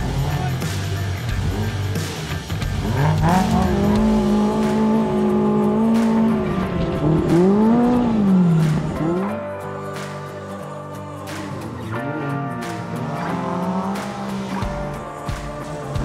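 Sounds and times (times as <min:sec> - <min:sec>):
off-road vehicle engine revving: 0:00.0 - 0:09.4, 0:11.3 - 0:16.0.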